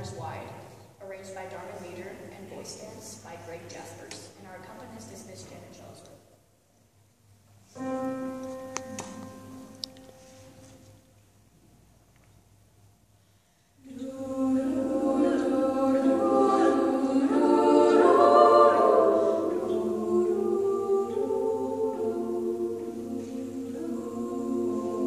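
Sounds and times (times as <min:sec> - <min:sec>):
women's choir singing in harmony: 0:13.8 - 0:25.0.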